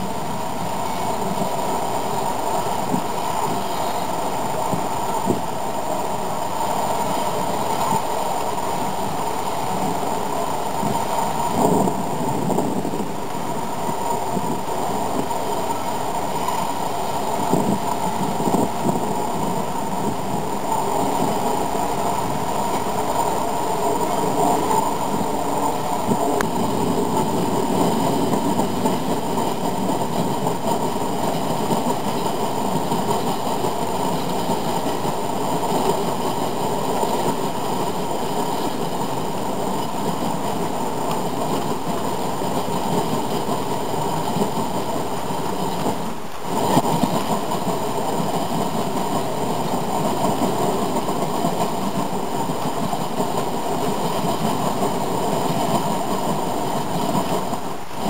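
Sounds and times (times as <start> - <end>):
model train wheels rattling on track: 0.0 - 58.0.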